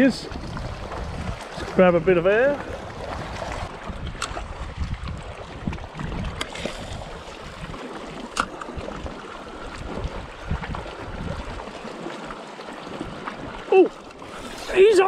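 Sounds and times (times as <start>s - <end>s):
wind buffeting microphone: 0.0s - 11.8s
small waves lapping on rocks: 0.0s - 15.0s.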